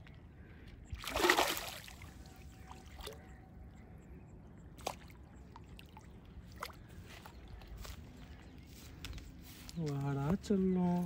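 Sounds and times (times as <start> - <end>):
fish splashing in water: 1.0 - 2.1.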